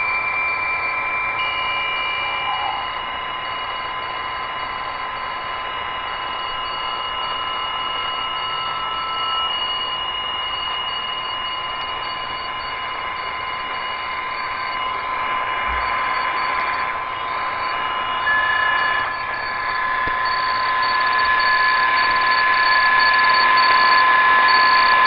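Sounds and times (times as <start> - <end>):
steady data tones: 0.0 - 25.0
higher tone beeping: 1.3 - 4.2, 6.0 - 25.0
radio band hiss: 2.2 - 6.4, 11.9 - 25.0.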